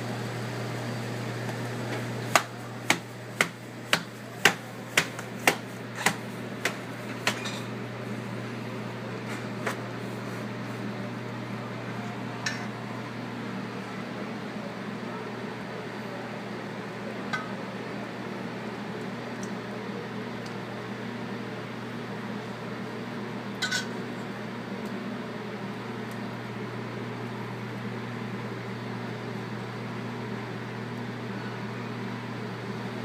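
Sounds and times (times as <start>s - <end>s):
metal spoon clinking on pot: 23.6s - 24.0s.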